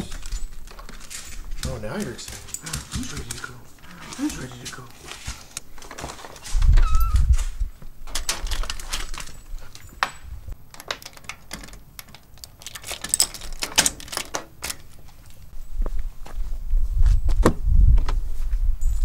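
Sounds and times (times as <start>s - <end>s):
keys jangling: 0.0s - 4.8s, 8.1s - 14.9s.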